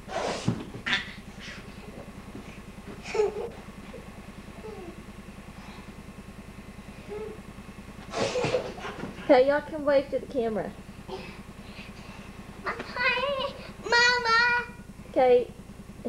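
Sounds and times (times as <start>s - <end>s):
low pulsing buzzing hum: 0.0s - 16.0s.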